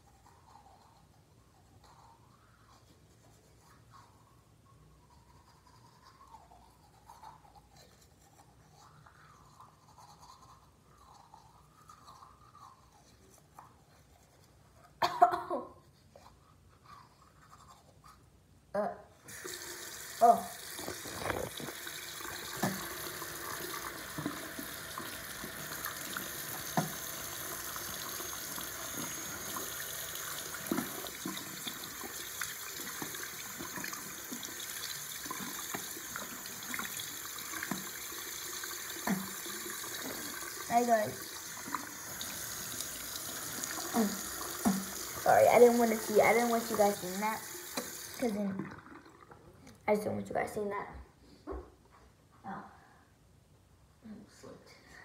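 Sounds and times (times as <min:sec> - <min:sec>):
toothbrush scrubbing teeth: 0:00.0 - 0:15.0, 0:15.8 - 0:18.4, 0:19.6 - 0:48.5
tap running into sink: 0:20.7 - 0:29.8, 0:30.5 - 0:38.1, 0:44.4 - 0:45.2, 0:47.7 - 0:48.2.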